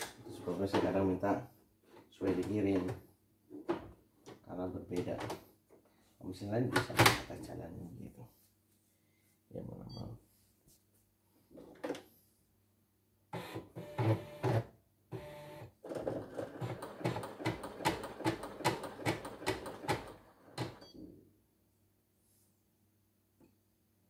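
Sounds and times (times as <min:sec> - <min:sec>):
embroidery machine stitching: 0:13.4 - 0:20.8.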